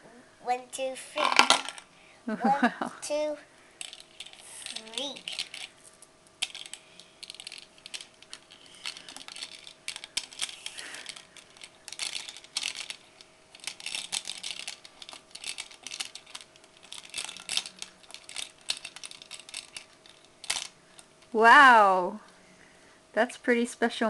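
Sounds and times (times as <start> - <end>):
bead chain rattling against plastic bottle: 3.8 - 20.8.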